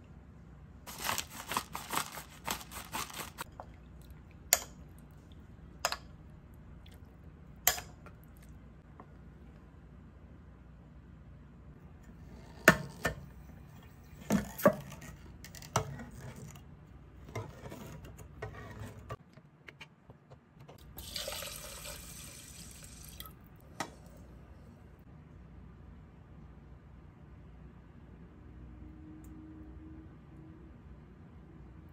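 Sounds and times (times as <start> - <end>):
liquid pouring: 20.9 - 23.4.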